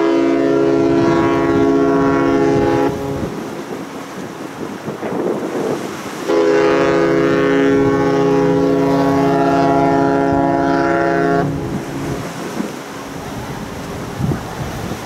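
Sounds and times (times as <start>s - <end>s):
ship whistle long blast: 0.0s - 3.4s, 6.2s - 12.2s
wind noise: 0.0s - 15.0s.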